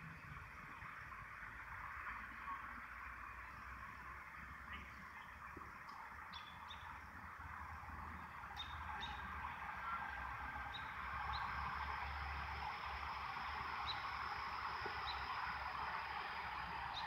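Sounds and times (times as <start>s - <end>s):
steady rushing noise: 5.4s - 17.0s.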